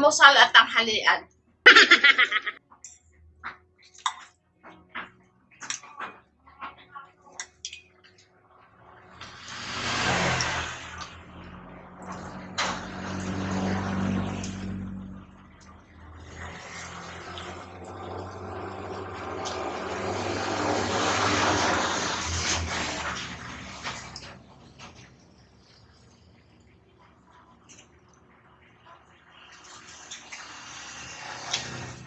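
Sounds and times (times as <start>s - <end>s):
vehicle engine humming: 8.9s - 28.9s.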